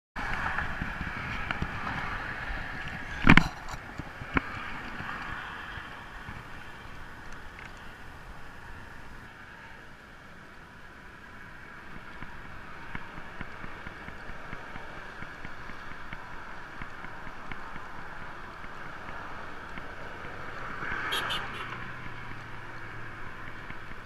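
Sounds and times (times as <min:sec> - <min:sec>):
road traffic: 0:00.2 - 0:24.0
wind: 0:00.2 - 0:24.0
faint light ticks: 0:18.5 - 0:19.9.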